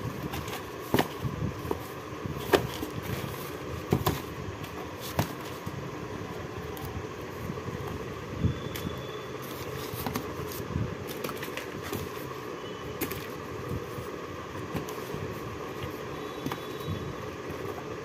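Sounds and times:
steady background hum: 0.0s - 18.0s
fruit knocking in cardboard box: 3.8s - 4.3s.

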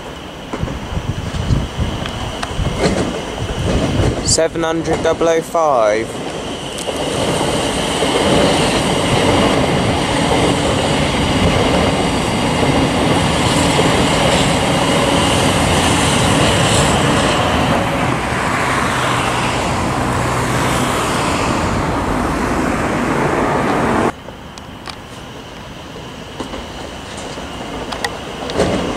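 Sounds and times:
train wheels on rail: 0.0s - 28.9s.

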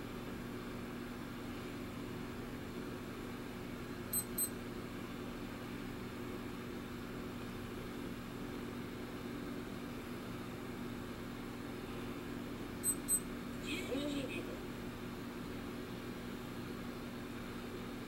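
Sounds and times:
low background hum: 0.0s - 18.0s
high-pitched electronic beeps: 4.2s - 4.5s, 12.8s - 13.2s.

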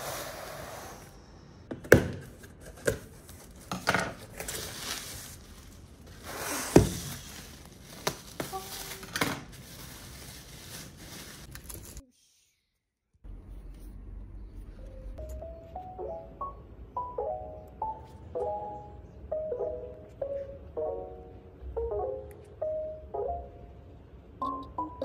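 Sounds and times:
bubble wrap rustling: 3.0s - 12.0s.

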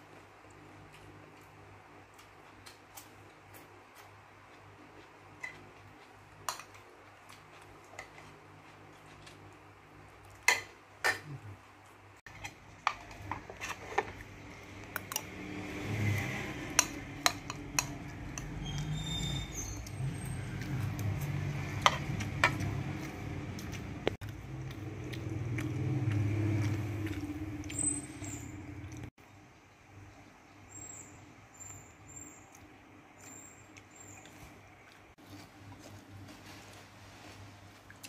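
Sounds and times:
metal spoon clinking on bowls: 16.7s - 18.8s.

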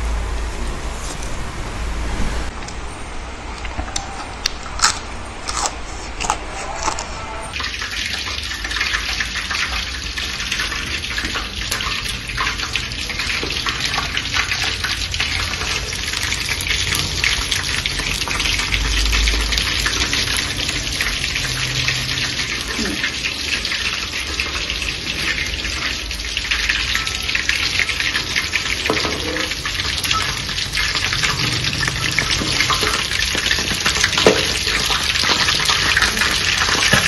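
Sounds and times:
chicken deep-frying in oil: 7.5s - 37.0s.

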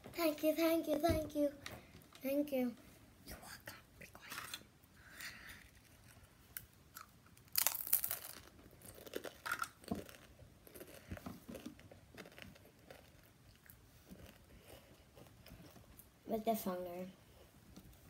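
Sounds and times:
chips being crunched and chewed: 5.6s - 14.8s.

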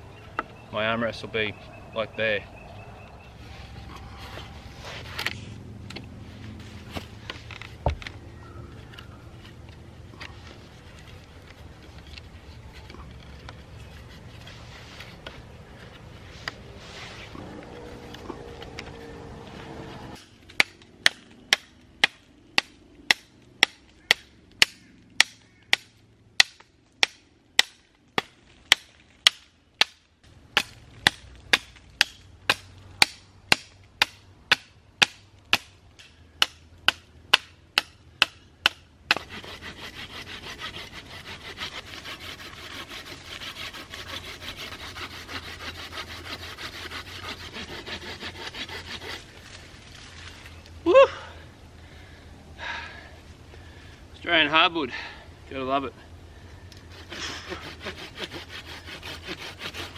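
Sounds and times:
hand saw sawing wood: 15.8s - 22.7s, 36.4s - 49.6s, 56.9s - 59.9s.

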